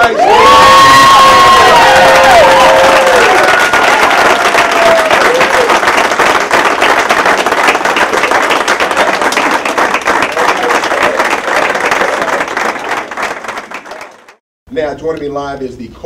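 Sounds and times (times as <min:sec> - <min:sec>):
person cheering: 0:00.0 - 0:05.8
audience applauding: 0:00.0 - 0:14.4.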